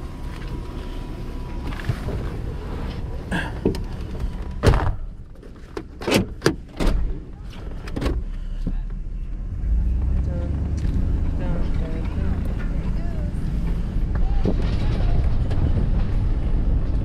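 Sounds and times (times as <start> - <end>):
outdoor noise: 0.0 - 17.0
car door thunk: 4.6 - 5.1.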